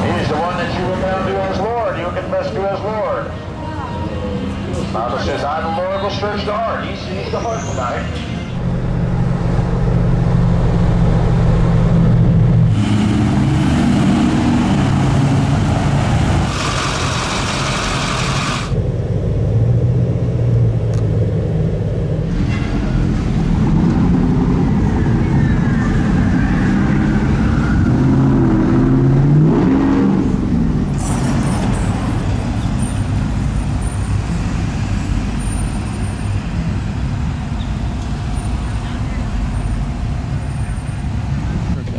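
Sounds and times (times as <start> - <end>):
traffic passing: 0.0 - 41.9
engine revving up: 8.6 - 18.8.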